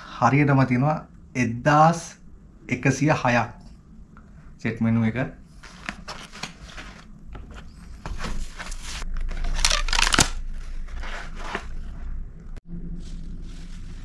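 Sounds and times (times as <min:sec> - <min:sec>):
cardboard scraping: 0:05.5 - 0:12.0, 0:12.9 - 0:14.0
paper rustling: 0:05.5 - 0:12.0, 0:12.9 - 0:14.0.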